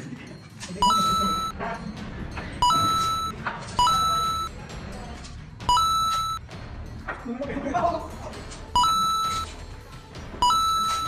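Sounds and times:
electronic two-note beep: 0.8 - 1.5, 2.6 - 4.5, 5.7 - 6.4, 8.8 - 9.4, 10.4 - 11.0.

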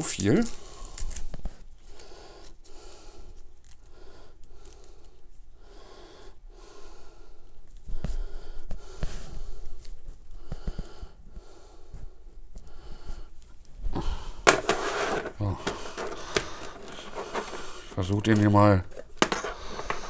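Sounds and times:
cable clicks and rustles: 0.0 - 1.6, 14.5 - 20.0
heavy breathing through nose: 0.5 - 18.2, 19.1 - 20.0.

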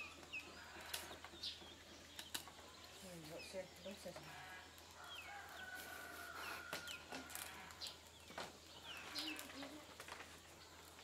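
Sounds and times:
birds chirping: 0.0 - 11.0
weaving strips clicking and rustling: 0.7 - 4.2, 6.7 - 11.0.

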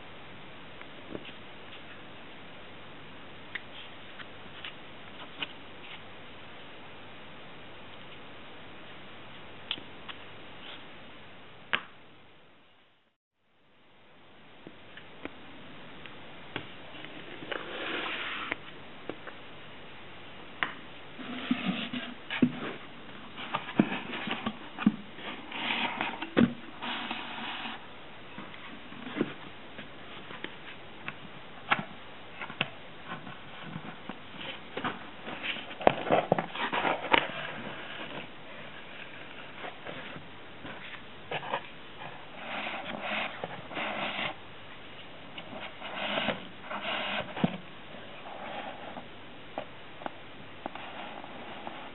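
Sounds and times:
rustling: 20.6 - 51.9.

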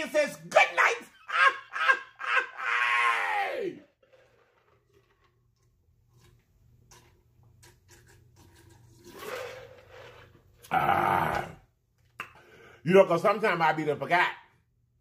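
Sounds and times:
person gulping a drink: 10.6 - 12.4.

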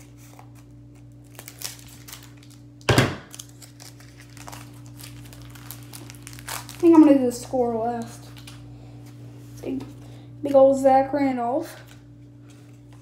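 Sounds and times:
wrapper crinkling: 0.0 - 8.7
steady low hum: 0.0 - 13.0.

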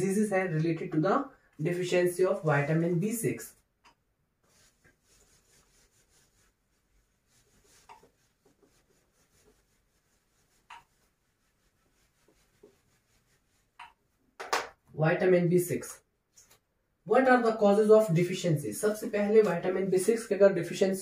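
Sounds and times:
eraser rubbing whiteboard: 4.4 - 14.0.

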